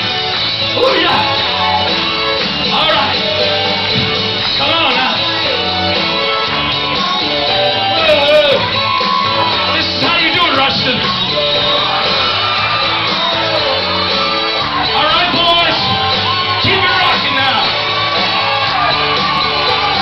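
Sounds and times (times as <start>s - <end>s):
loud rock music: 0.0s - 20.0s
man singing and shouting: 0.7s - 1.5s, 2.6s - 3.9s, 4.5s - 5.8s, 7.2s - 12.2s, 14.8s - 16.0s.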